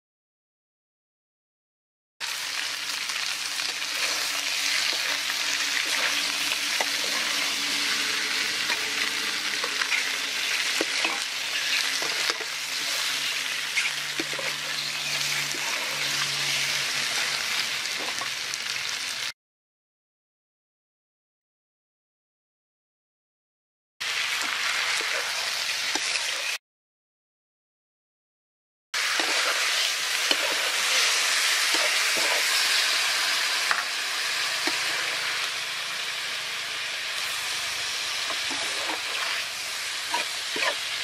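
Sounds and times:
food sizzling in hot oil: 0:02.2 - 0:19.4, 0:24.0 - 0:26.6, 0:29.0 - 0:41.0
metal spatula scraping a wok: 0:03.2 - 0:18.4, 0:24.8 - 0:26.6, 0:29.0 - 0:41.0.

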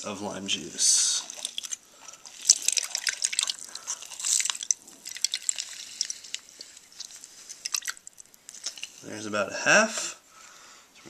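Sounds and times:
juice dripping into cup: 0:00.8 - 0:09.1.

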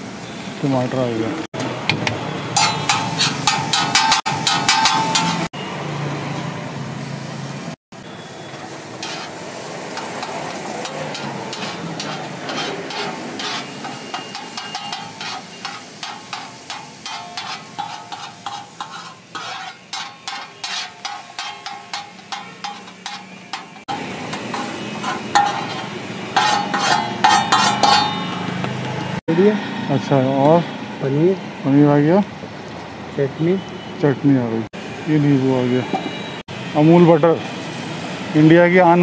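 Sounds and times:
food sizzling on griddle: 0:02.6 - 0:05.5, 0:07.0 - 0:28.9, 0:37.4 - 0:39.0
spoon scraping and tapping griddle: 0:02.6 - 0:05.5, 0:08.9 - 0:29.1.

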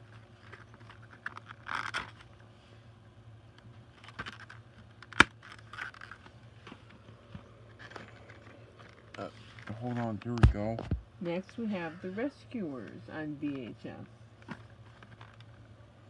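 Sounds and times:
plastic case clicks and rustling: 0:04.0 - 0:06.8.

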